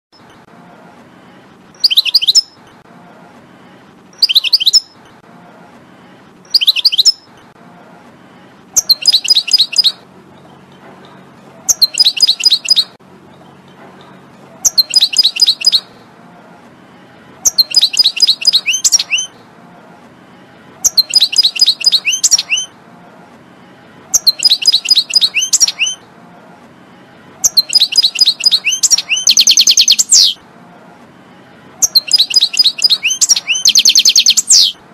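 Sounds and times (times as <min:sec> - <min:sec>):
goldfinch singing: 0:01.8 - 0:02.6, 0:04.2 - 0:05.0, 0:06.5 - 0:07.3, 0:08.8 - 0:10.0, 0:11.6 - 0:13.0, 0:14.6 - 0:15.9, 0:17.4 - 0:19.3, 0:20.8 - 0:22.7, 0:24.1 - 0:26.0, 0:27.4 - 0:30.4, 0:31.8 - 0:34.8.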